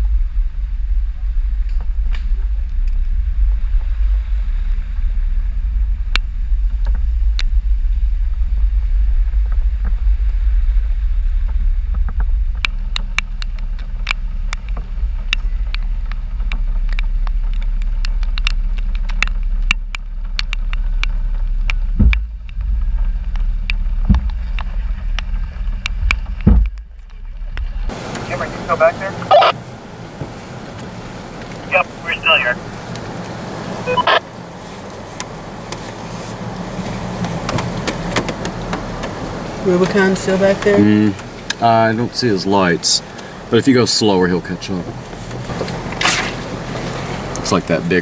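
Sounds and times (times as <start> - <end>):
low thumps: 0.0 - 34.2
car engine running: 0.0 - 48.0
raindrops ticking on camera: 11.4 - 48.0.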